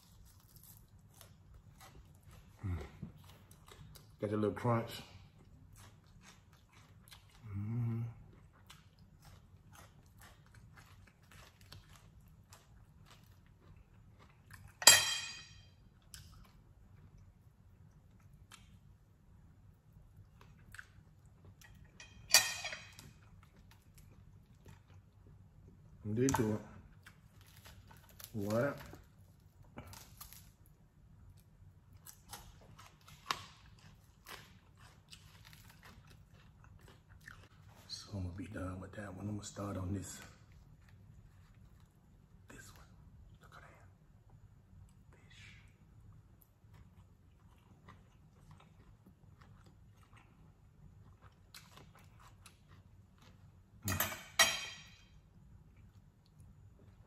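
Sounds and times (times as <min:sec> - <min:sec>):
chewing crispy fried fish: 0:00.0 - 0:14.9, 0:15.8 - 0:22.0, 0:22.9 - 0:43.4, 0:44.7 - 0:53.8
metal fork clattering on plate: 0:53.9 - 0:54.9.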